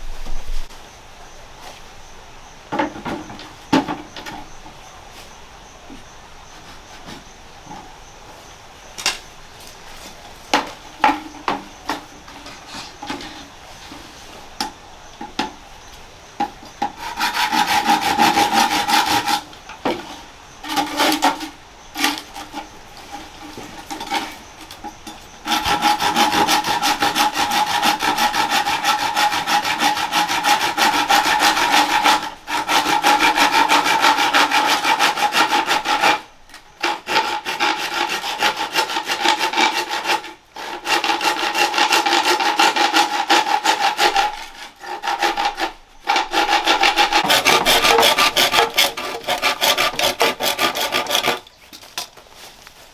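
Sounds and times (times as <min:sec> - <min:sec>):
wood knocks and clatter: 0:02.7 - 0:04.5, 0:10.5 - 0:13.4
hand saw cutting wood: 0:16.4 - 0:51.6.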